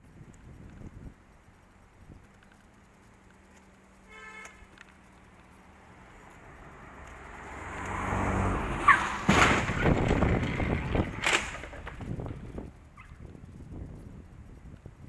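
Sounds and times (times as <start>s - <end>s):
car passing by: 5.9s - 11.2s
loud crash bang: 8.8s - 11.6s
tyre squeal: 8.8s - 11.8s, 13.0s - 13.2s
knocking and rattling: 9.0s - 12.4s.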